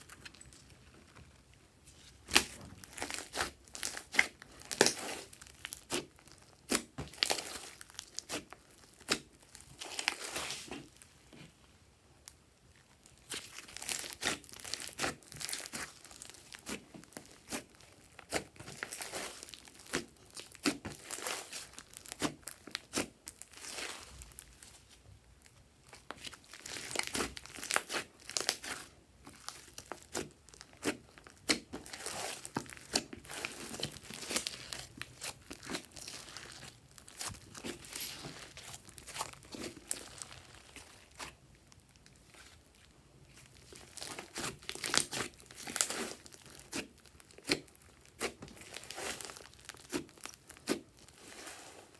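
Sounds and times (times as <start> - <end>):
hands squeezing slime: 2.2 - 11.0, 13.0 - 24.9, 25.8 - 51.9.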